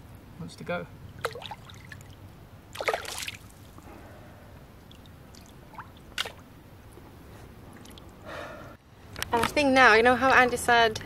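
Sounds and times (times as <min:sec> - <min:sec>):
water trickling and lapping: 0:01.0 - 0:08.3.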